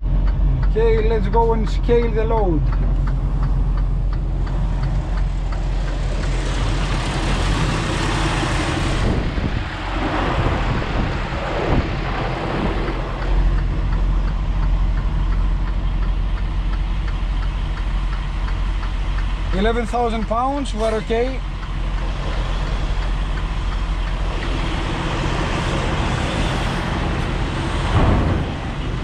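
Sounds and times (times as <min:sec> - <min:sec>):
faint regular ticking: 0:00.0 - 0:07.0, 0:11.1 - 0:26.6
truck diesel engine running: 0:00.0 - 0:29.0.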